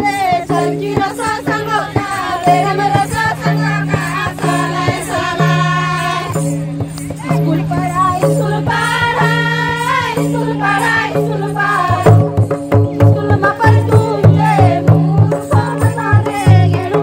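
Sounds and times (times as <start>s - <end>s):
voices singing together: 0.0s - 17.0s.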